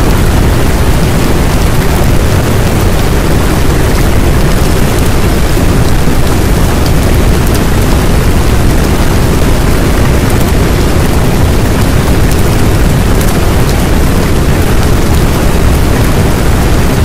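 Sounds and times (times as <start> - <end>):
loud rushing noise with deep rumble: 0.0 - 17.0.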